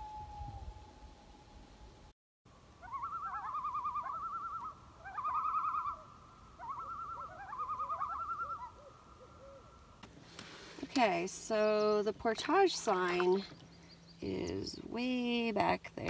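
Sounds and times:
loons calling: 2.8 - 10.0.

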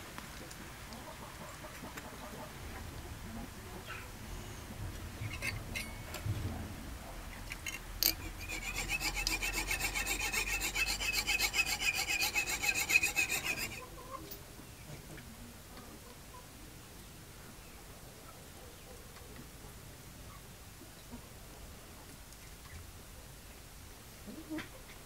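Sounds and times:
fret saw rasping through metal: 5.2 - 6.1, 7.4 - 13.8.

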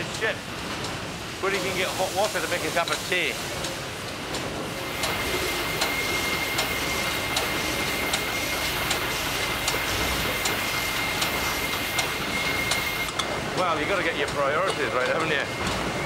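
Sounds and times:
regular mechanical tick: 2.8 - 15.8
engine-room machinery din: 4.3 - 16.0
thin high whine: 4.8 - 13.2.

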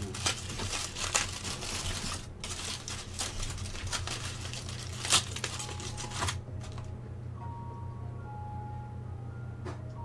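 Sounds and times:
aluminium foil crinkling: 0.0 - 6.9.

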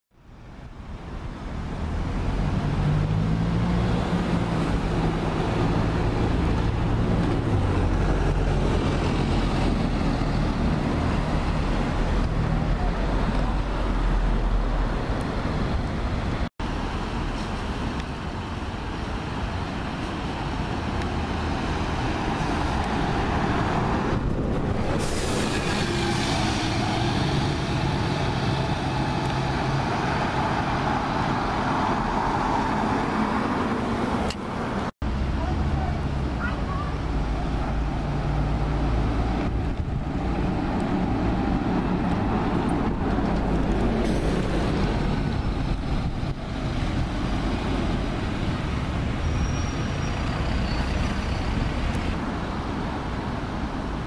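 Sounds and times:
street traffic: 0.1 - 54.0
bus passing close: 1.3 - 54.0
bus diesel engine running: 32.8 - 54.0.

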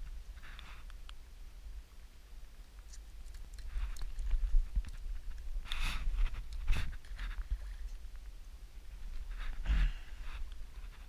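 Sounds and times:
wind rumble on microphone: 3.5 - 11.0.

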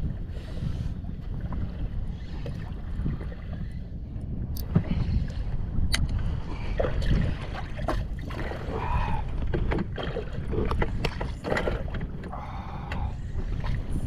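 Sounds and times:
water lapping boat hull: 0.0 - 14.0
wind: 0.0 - 14.0.

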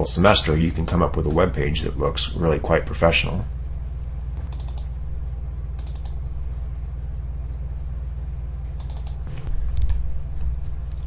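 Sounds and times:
steady low hum: 0.0 - 11.0
computer mouse clicking: 4.0 - 4.9, 5.8 - 6.2, 8.6 - 10.0.

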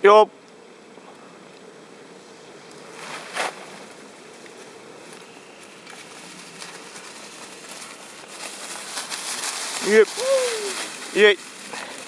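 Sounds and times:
bike tyres crackling over leaves: 0.0 - 12.0
loud rustle: 2.5 - 12.0.

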